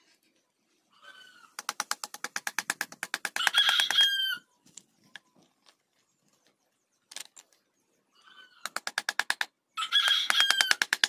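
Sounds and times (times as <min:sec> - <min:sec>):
chisel knocking on wood: 0:01.6 - 0:04.0
fast sharp tapping: 0:01.6 - 0:04.0, 0:08.6 - 0:09.5, 0:10.1 - 0:11.0
rooster crowing: 0:03.4 - 0:04.4, 0:09.8 - 0:10.8.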